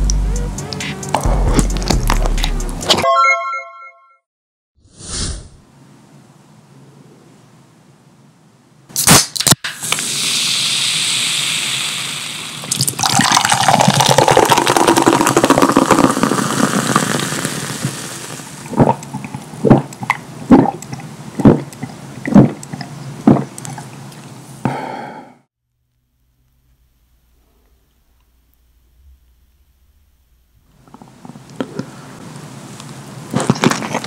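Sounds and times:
soda fizzing: 9.7s - 24.4s
soda pouring into glass: 10.0s - 19.0s
loud gulps: 12.7s - 23.9s.

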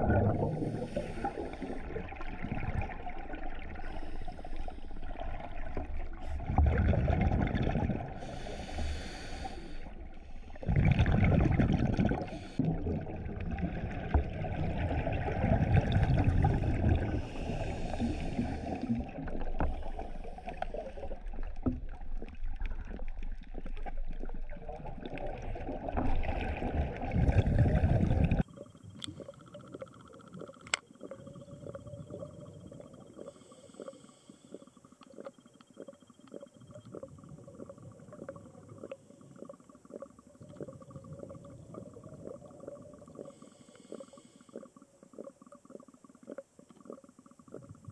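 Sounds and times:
regulator exhaled bubbles: 0.0s - 23.1s, 24.8s - 47.9s
quiet underwater background: 0.0s - 47.9s
hissing breaths: 8.2s - 10.6s, 16.5s - 19.0s, 33.2s - 34.7s, 43.2s - 44.7s.

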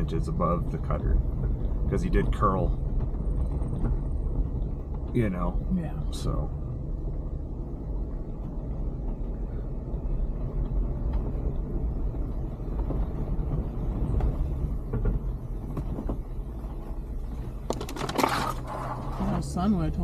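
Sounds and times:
engine and road rumble: 0.0s - 20.0s
faint knocks or rattles: 12.2s - 19.2s.

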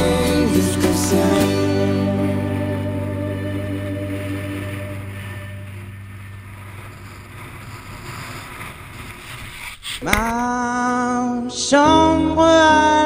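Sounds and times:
music: 0.0s - 5.8s, 11.3s - 13.0s
sea noise: 0.0s - 11.4s.

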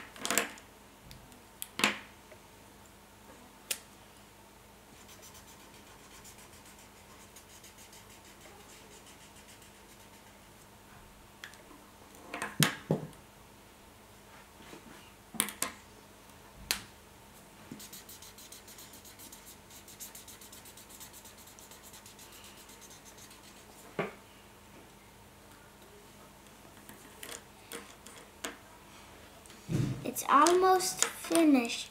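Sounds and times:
marker scratching on paper: 5.0s - 10.5s, 17.7s - 23.9s.

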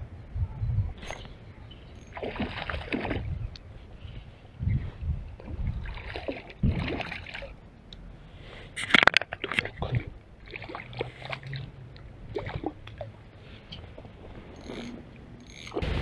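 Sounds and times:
fish splashing at water surface: 2.0s - 3.3s, 8.8s - 11.7s.

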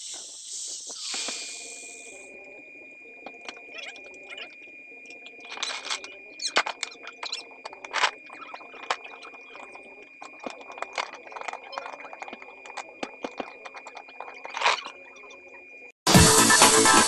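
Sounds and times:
faint steady high tone: 0.0s - 16.0s
metal tools clicking and rattling: 5.2s - 15.0s.

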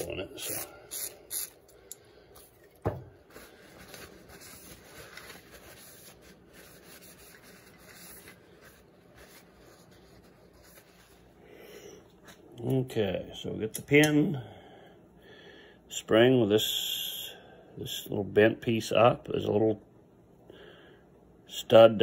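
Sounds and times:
paper towel rubbing metal tube: 3.2s - 11.3s.

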